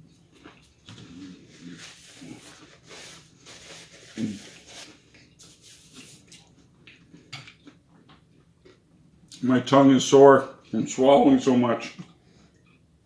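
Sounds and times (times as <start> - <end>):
chewing: 0.0 - 2.7
paper napkin rustling: 1.0 - 6.5.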